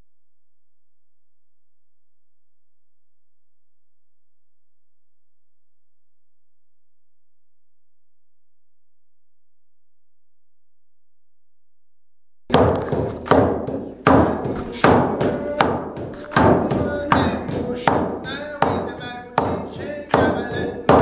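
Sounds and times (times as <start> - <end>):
music with loud steady beat: 12.5 - 21.0.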